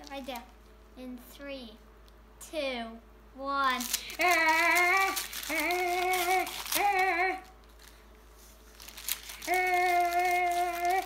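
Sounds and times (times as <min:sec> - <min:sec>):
plastic wrapping crinkling: 0:03.8 - 0:11.0
child humming: 0:04.0 - 0:07.5, 0:09.4 - 0:11.0.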